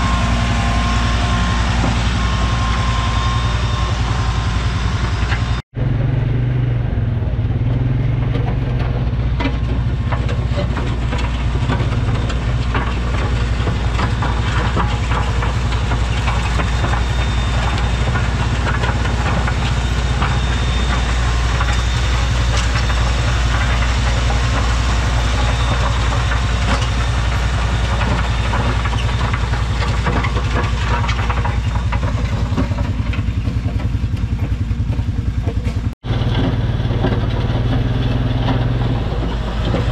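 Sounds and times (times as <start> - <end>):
tractor engine droning: 0.0 - 39.9
utility vehicle engine: 0.0 - 39.9.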